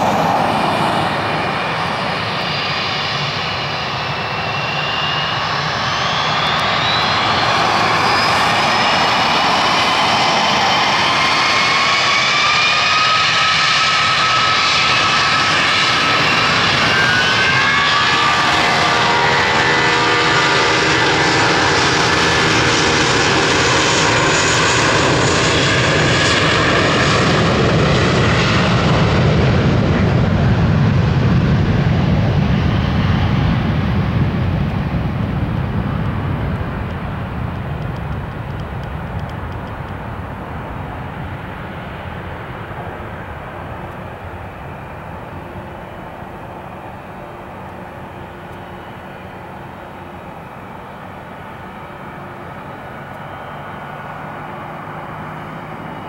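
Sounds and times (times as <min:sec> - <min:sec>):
deep jet rumble: 0:00.0 - 0:54.1
jet engines whining: 0:00.0 - 0:56.0.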